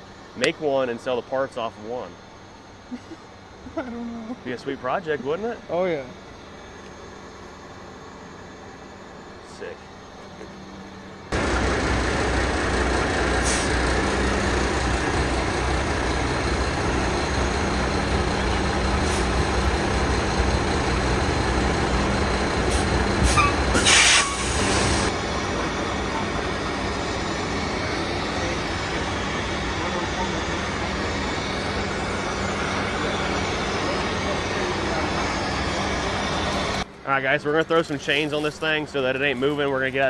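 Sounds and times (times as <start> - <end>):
diesel truck engine running: 9.2 - 36.9
loud air hiss: 11.4 - 14.7, 18.8 - 19.9, 22.5 - 36.8.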